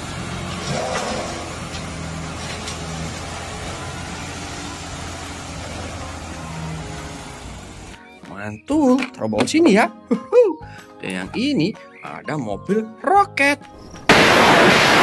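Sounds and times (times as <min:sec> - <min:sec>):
diesel truck engine running: 0:00.0 - 0:08.1
soil sliding out: 0:00.2 - 0:03.7.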